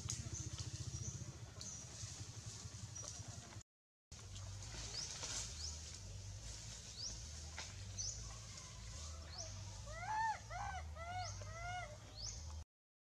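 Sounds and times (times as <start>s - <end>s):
young monkey crying: 9.8s - 12.1s.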